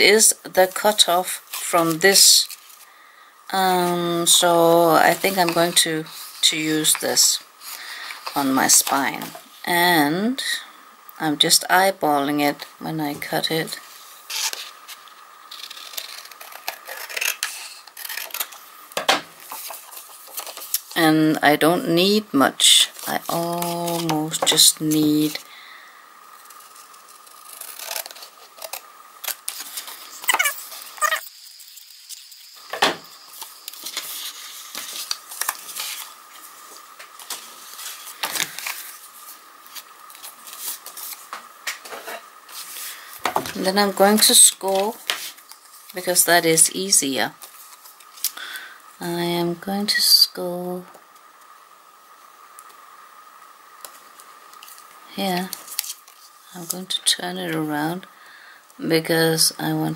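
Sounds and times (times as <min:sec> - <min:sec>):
paper rustling: 0:33.3 - 0:43.6.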